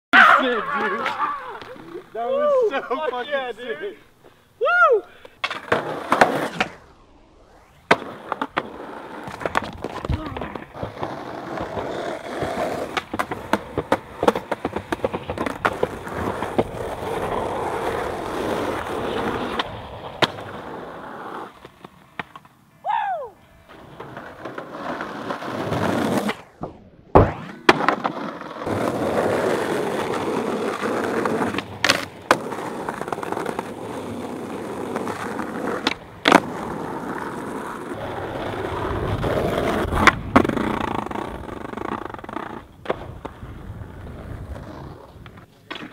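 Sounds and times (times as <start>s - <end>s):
skateboard wheels rolling on pavement: 0.2s - 45.9s
skateboard pops and clacks: 5.2s - 6.8s, 7.9s - 17.4s, 19.0s - 20.6s, 21.5s - 22.6s, 24.0s - 37.6s, 39.2s - 43.5s, 44.5s - 45.9s.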